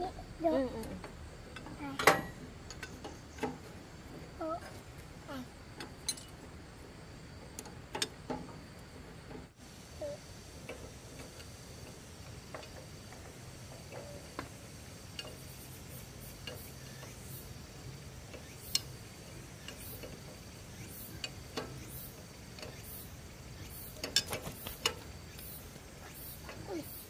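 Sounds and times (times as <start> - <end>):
small mechanical clicks and taps: 18.3 - 19.0.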